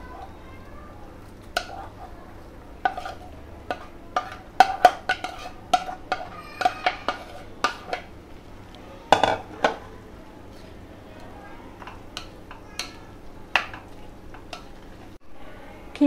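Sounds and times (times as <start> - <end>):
spatula scraping pan: 1.4 - 2.2, 2.8 - 8.2, 10.4 - 10.8
spatula tapping metal pan: 2.8 - 8.1.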